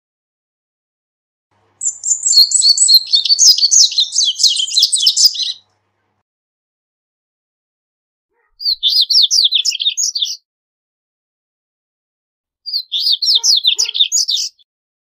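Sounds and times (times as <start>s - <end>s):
bird singing high sliding notes: 1.8s - 5.6s.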